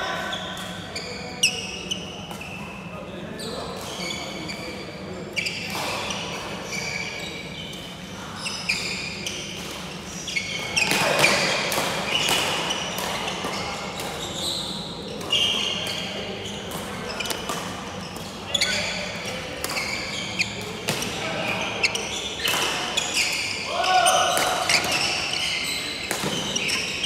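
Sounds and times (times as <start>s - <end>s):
racket hitting shuttlecock: 10.7s - 14.2s, 26.0s - 26.9s
shoes squeaking on wooden floor: 19.7s - 20.6s, 21.6s - 27.0s.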